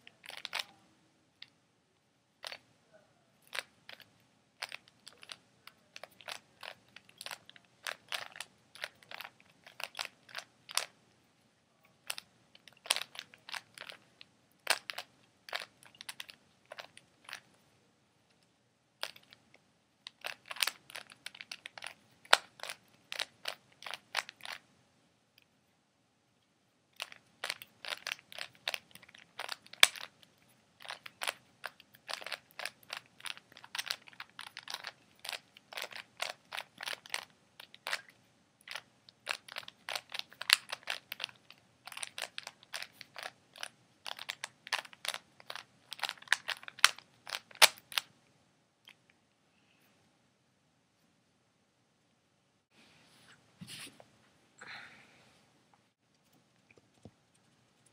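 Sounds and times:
puzzle cube plastic clicks: 0.0 - 0.7, 3.4 - 11.0, 12.0 - 17.5, 19.0 - 24.6, 27.0 - 48.1.

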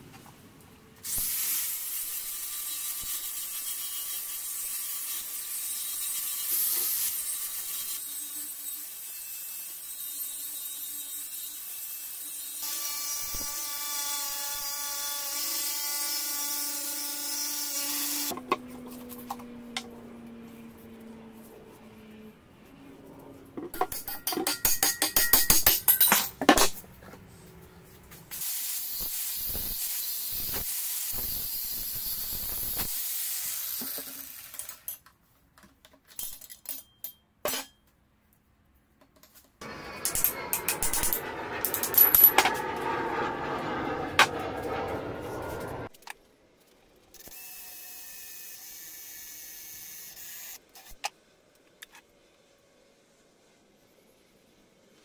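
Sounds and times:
angle grinder whining on metal: 39.6 - 45.9.

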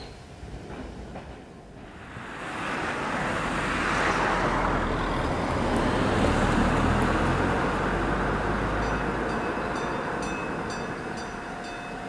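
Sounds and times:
car approaching: 1.9 - 12.0.

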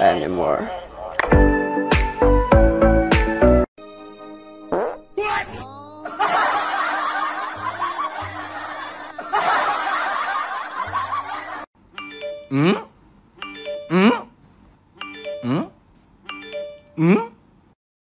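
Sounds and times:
canned laughter: 6.0 - 11.7.

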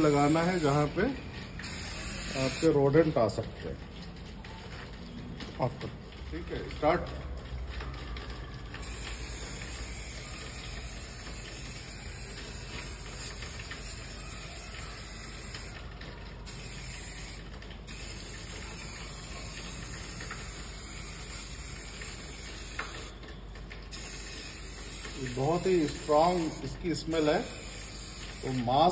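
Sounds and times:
aerosol spray hissing: 1.6 - 2.7, 8.8 - 15.8, 16.5 - 23.1, 23.9 - 28.9.

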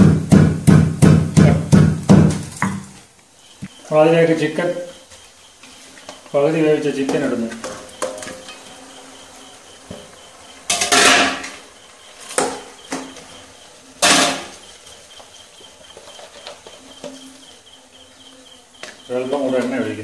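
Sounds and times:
metal bowl and pan clattering: 5.9 - 8.9, 9.8 - 15.0, 15.7 - 17.4.

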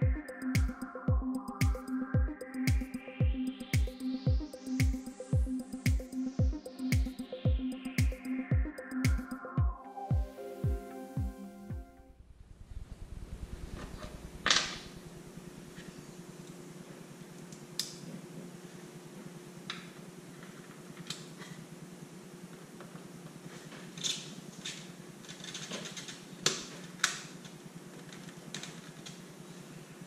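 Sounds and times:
low hum: 0.0 - 16.4.

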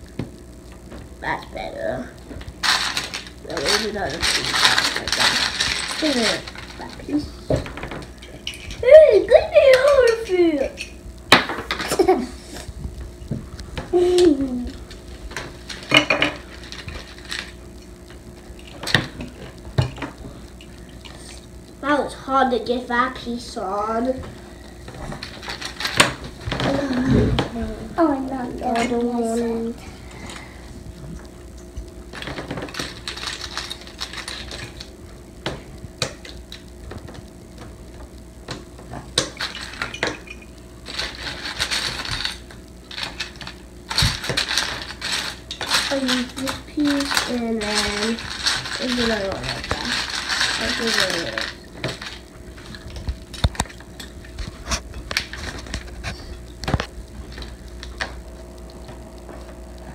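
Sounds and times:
plastic bricks clicking and clattering: 2.6 - 8.9, 39.2 - 54.5.

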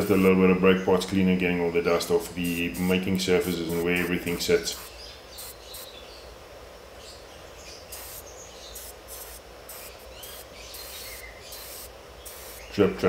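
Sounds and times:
aerosol spray hissing bursts: 2.2 - 6.0, 7.9 - 12.8.

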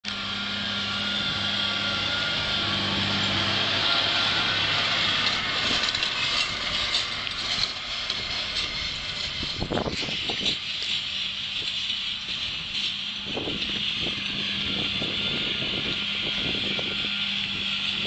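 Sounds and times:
tractor engine hum: 0.0 - 18.0
wagon clattering and knocking: 5.2 - 14.4.

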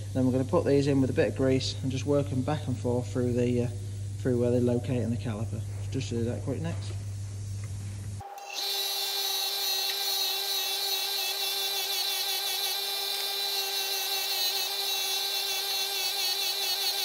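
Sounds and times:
bench grinder hum: 8.2 - 17.0.

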